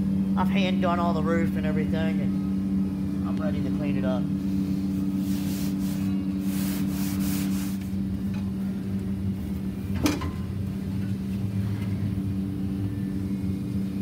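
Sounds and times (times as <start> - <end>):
steady low hum: 0.0 - 14.0
pad scrubbing sheet metal: 5.2 - 7.9.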